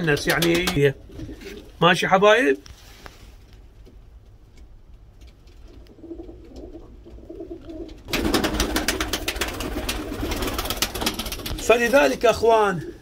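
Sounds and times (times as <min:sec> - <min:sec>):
pigeons cooing: 0:05.7 - 0:11.4.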